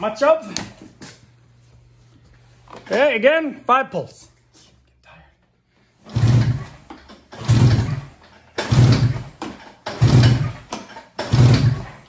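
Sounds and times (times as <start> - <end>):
snowmobile engine cranking: 6.0 - 12.0.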